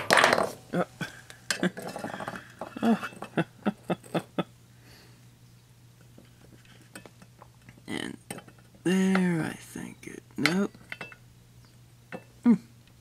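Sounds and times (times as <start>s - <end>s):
metal spatula clinking on glass bulb: 10.8s - 11.2s.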